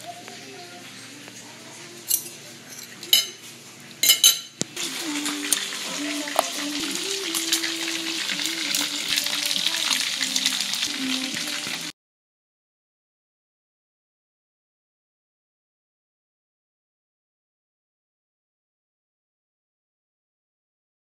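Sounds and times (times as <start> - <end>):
chicken deep-frying in hot oil: 3.3 - 12.0.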